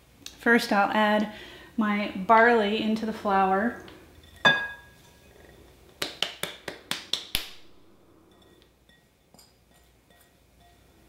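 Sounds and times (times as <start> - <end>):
faint glass clinks: 4.2 - 5.0
glass bowl knocking: 4.3 - 5.0.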